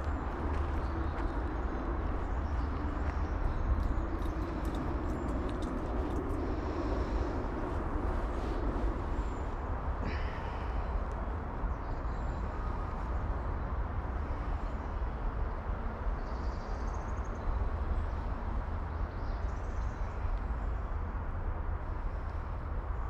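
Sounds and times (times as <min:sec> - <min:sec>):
low outdoor rumble: 0:00.0 - 0:16.7.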